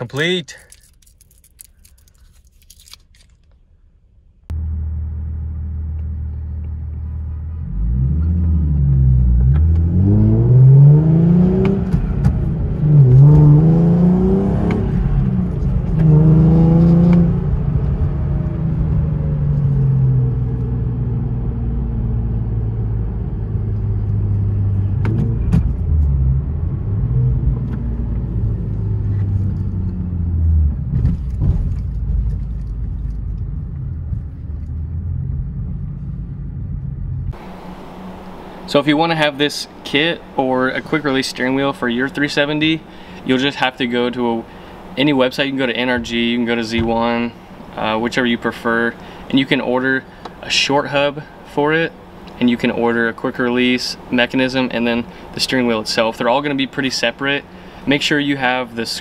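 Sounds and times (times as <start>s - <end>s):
car engine revving through gears: 7.5s - 38.8s.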